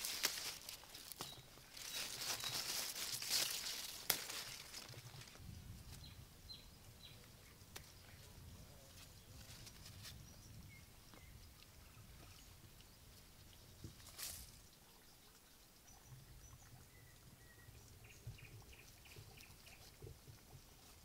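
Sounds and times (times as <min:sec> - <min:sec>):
leaves rustling and crackling: 0:00.0 - 0:06.2, 0:07.6 - 0:10.7, 0:13.8 - 0:14.7.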